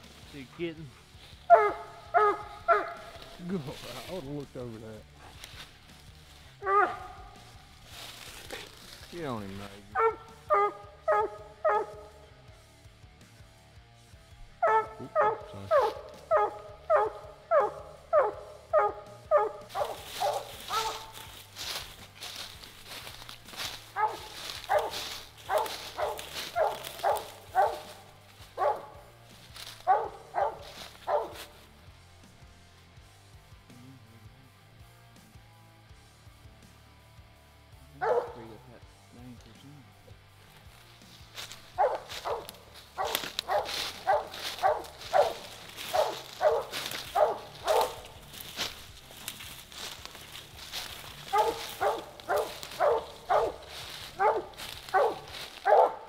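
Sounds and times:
dog barking: 0:01.5 - 0:03.4, 0:06.6 - 0:07.5, 0:09.9 - 0:12.1, 0:14.6 - 0:21.3, 0:22.2 - 0:29.0, 0:29.6 - 0:31.6, 0:38.0 - 0:38.6, 0:41.4 - 0:48.8, 0:50.8 - 0:56.0.

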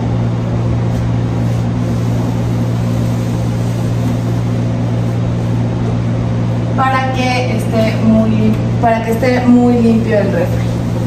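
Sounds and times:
electric motor hum: 0:00.0 - 0:11.0
hiss of moving air: 0:01.3 - 0:05.6.

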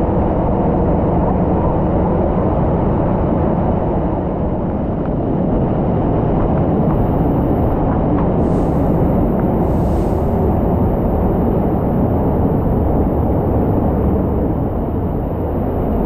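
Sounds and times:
waterfall rushing: 0:08.4 - 0:10.6.

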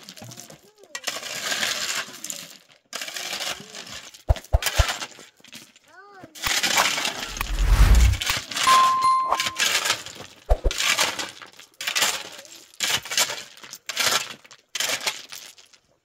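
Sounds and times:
rough scraping strokes: 0:07.2 - 0:08.2
clear ringing ding: 0:07.5 - 0:09.7.

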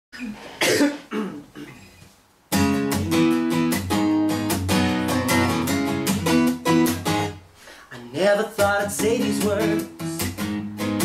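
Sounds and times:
acoustic guitar strumming: 0:02.5 - 0:11.0.

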